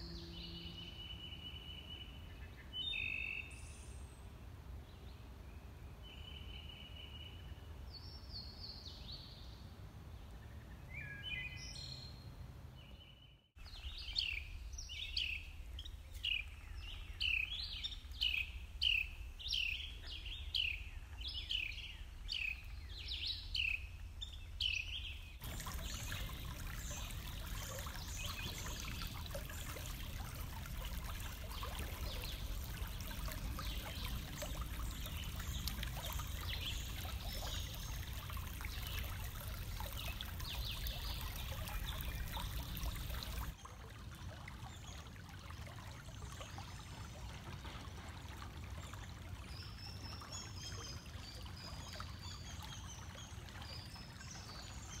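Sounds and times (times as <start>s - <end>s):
creek water rushing over rocks: 25.4s - 43.6s.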